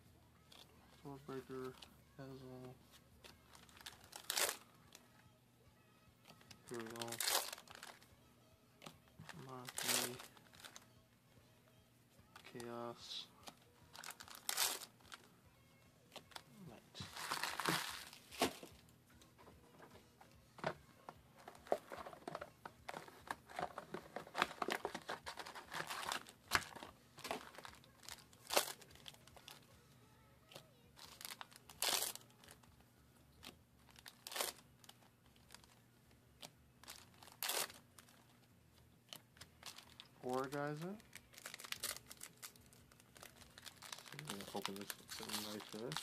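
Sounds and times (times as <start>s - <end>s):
foil wrappers crinkling: 3.2s - 4.9s, 6.3s - 8.1s, 9.2s - 10.8s, 12.3s - 15.3s, 16.2s - 18.7s, 21.4s - 29.6s, 30.5s - 32.7s, 33.4s - 35.8s, 36.4s - 38.4s, 39.1s - 46.0s.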